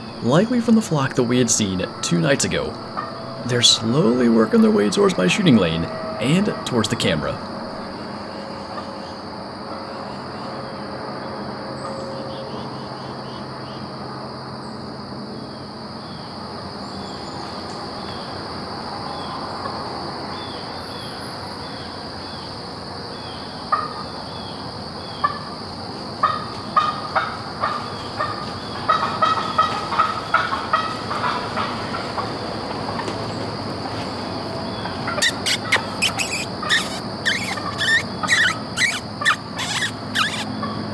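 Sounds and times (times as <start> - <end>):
insects trilling: 0.0 - 40.9
turkey clucking: 3.0 - 3.2, 26.2 - 33.2, 34.8 - 40.8.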